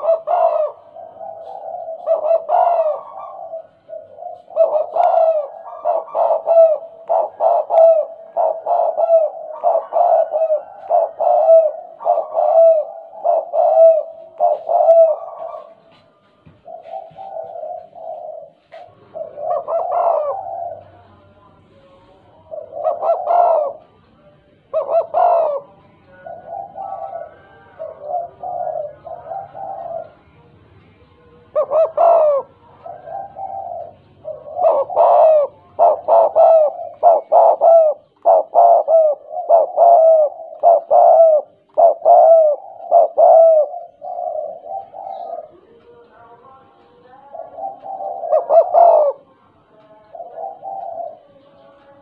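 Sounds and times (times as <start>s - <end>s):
dove cooing: 0.0s - 46.1s, 46.9s - 52.0s.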